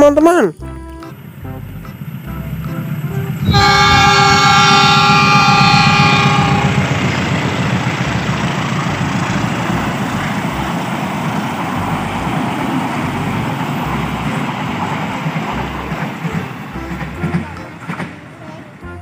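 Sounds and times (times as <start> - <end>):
locomotive engine rumbling: 0.0 - 19.0
train wheels on rails: 1.0 - 18.9
train horn: 2.1 - 10.7.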